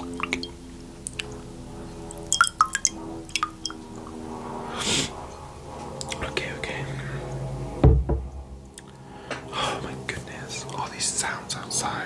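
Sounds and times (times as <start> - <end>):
faint background music: 0.0 - 12.0
lip smacks: 0.2 - 1.4
tongue clicks: 0.2 - 1.4
breath: 8.9 - 9.8.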